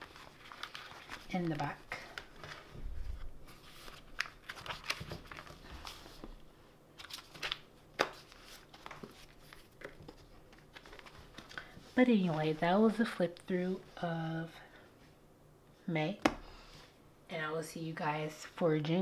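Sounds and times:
pages rustling: 0.0 - 6.4, 7.0 - 13.1.

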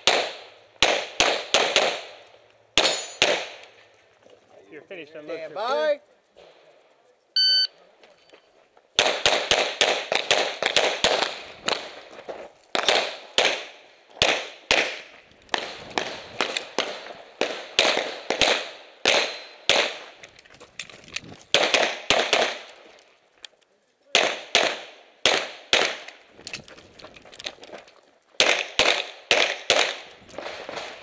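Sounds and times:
pistol shots: 0.0 - 2.2, 2.8 - 3.7, 9.0 - 12.0, 12.7 - 20.2, 21.5 - 22.8, 24.1 - 26.2, 28.4 - 31.0
shot timer beep: 7.4 - 7.8.

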